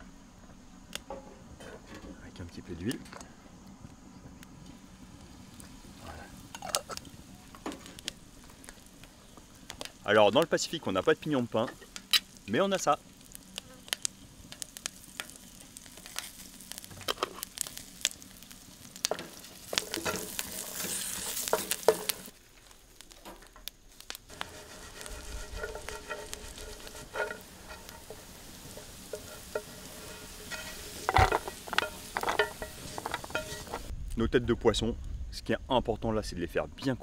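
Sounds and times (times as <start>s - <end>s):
nuts sizzling in oil: 4.4s - 33.9s
nuts clicking on a pan: 13.2s - 22.3s, 23.0s - 33.9s
nuts clattering into wooden bowl: 30.6s - 33.8s.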